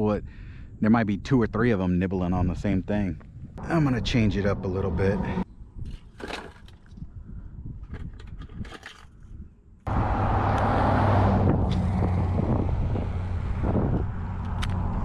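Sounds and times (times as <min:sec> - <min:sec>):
loud outdoor rumble: 0:03.6 - 0:05.5, 0:09.9 - 0:15.0.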